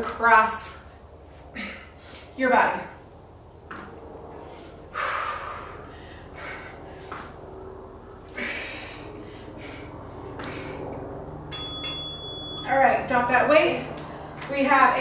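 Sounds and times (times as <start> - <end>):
woman breathing hard: 1.4 - 2.4, 4.3 - 7.5, 8.3 - 11.2
forceful exhalations: 8.3 - 11.0
short high ding: 11.5 - 12.7.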